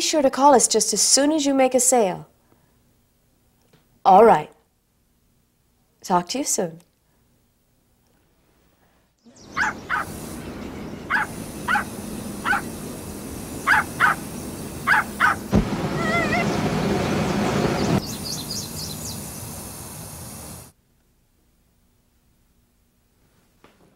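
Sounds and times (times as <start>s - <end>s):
puppy yapping: 9.5s - 10.2s, 11.1s - 12.7s, 13.6s - 14.2s, 14.8s - 16.6s.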